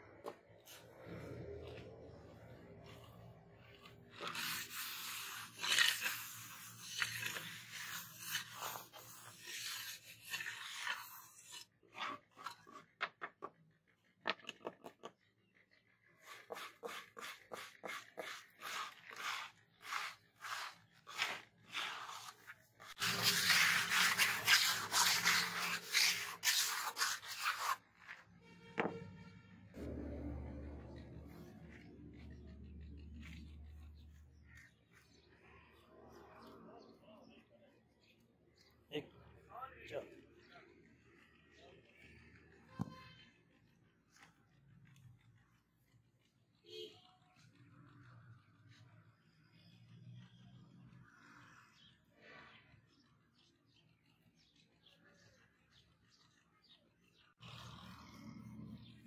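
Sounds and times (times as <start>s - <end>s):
trowel scraping wet cement: 0.3s - 13.0s, 16.2s - 28.3s.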